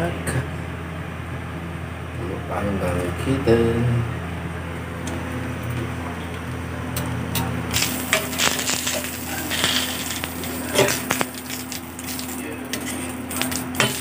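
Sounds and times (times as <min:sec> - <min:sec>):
steady low hum: 0:00.0 - 0:14.0
metal tongs scraping on griddle: 0:07.7 - 0:14.0
dry leaf wrappers crackling: 0:07.8 - 0:14.0.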